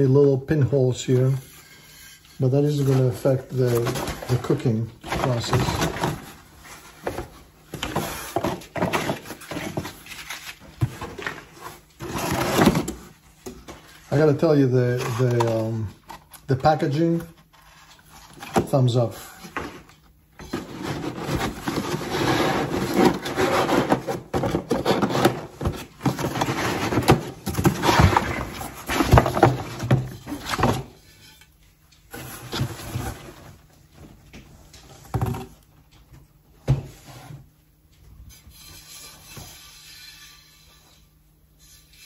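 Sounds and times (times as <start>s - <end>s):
cardboard packaging rustling: 2.6s - 31.0s.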